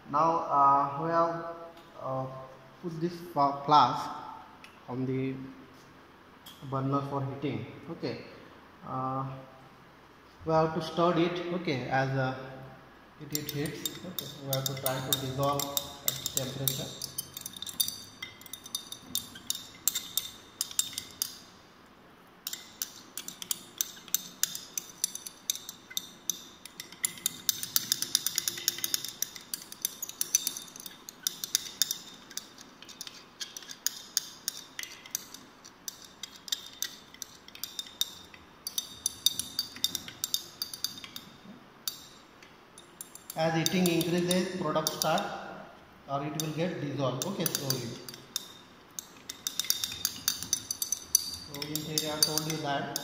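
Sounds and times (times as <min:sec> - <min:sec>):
glass rod clinking in glass flask: 0:13.3 - 0:21.5, 0:22.5 - 0:42.2, 0:42.8 - 0:45.4, 0:47.2 - 0:53.0.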